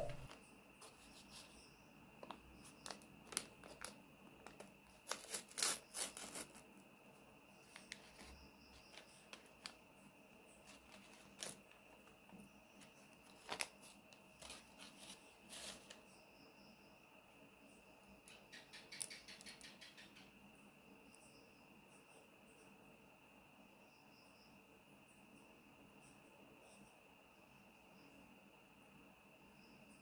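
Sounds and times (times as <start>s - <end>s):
faint high whine: 0.0s - 2.0s
paper packet rustling and tearing: 2.8s - 6.6s, 10.6s - 12.0s, 13.3s - 16.0s.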